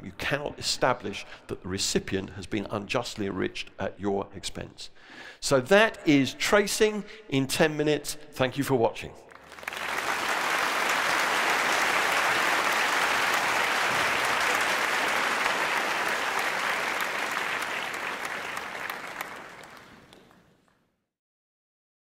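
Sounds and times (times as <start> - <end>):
audience applauding: 9.3 - 20.8.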